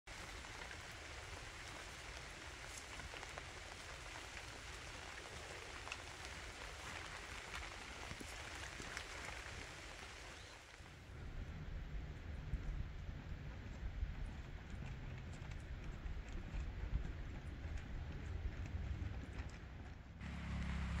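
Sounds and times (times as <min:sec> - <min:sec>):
steady rain: 0:00.1 - 0:11.2.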